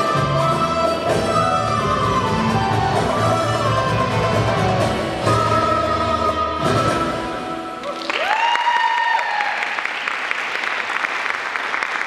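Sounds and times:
belly dance music: 0.0s - 8.5s
audience applause: 7.8s - 12.0s
high cheer: 7.8s - 12.0s.

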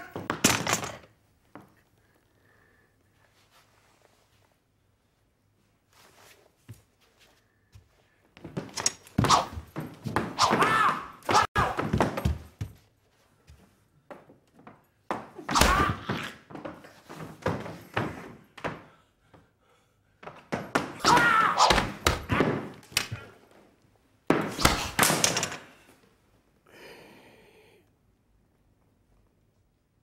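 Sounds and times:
people shouting: 10.4s - 11.8s, 15.5s - 16.2s, 21.0s - 22.7s.

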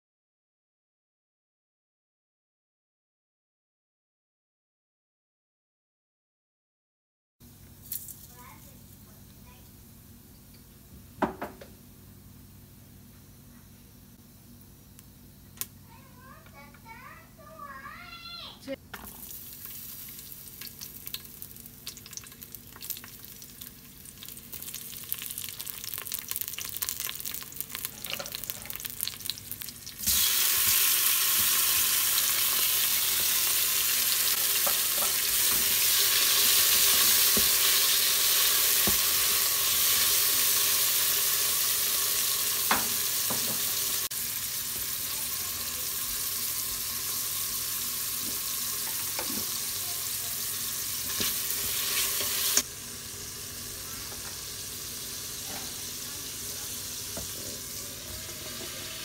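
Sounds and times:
seeds crackling in hot oil: 7.5s - 9.8s, 18.9s - 59.0s
loud steady sizzle: 17.0s - 59.0s.

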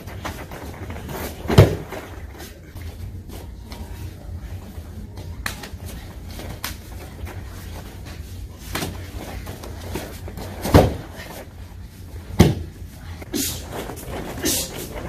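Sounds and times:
body thudding on mat: 0.0s - 2.2s, 9.8s - 11.3s, 12.3s - 12.8s.

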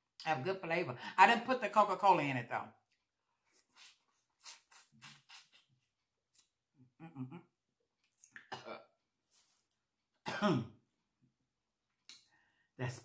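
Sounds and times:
wet lip smacking and sucking: 3.5s - 6.5s.

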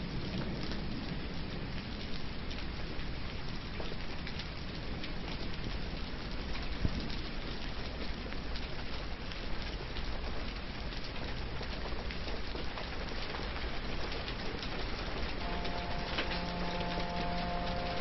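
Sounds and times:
steady rain falling: 0.0s - 18.0s.

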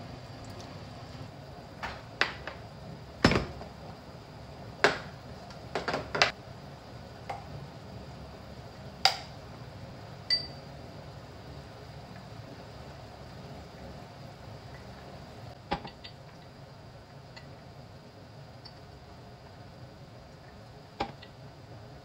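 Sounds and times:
glass ringing clink: 10.3s - 10.7s.

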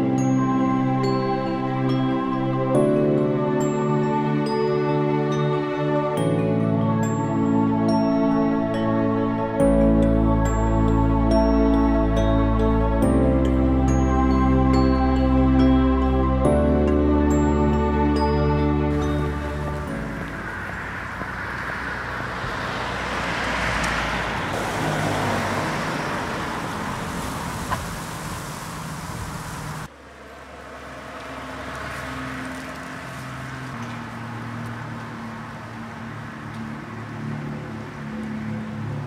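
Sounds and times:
vehicle passing on road: 17.3s - 39.0s.

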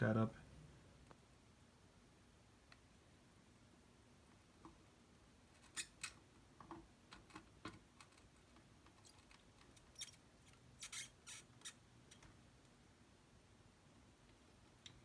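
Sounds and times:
desoldering clicks and crackles: 14.2s - 15.0s.

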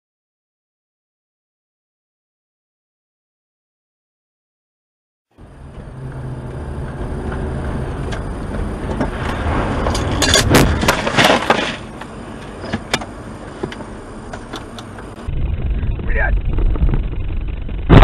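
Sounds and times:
engine and road rumble: 5.3s - 18.0s.

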